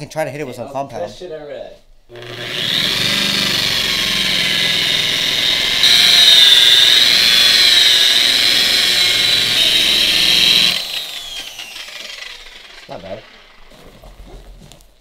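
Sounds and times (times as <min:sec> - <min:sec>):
electric polisher motor whine: 0:02.1 - 0:13.8.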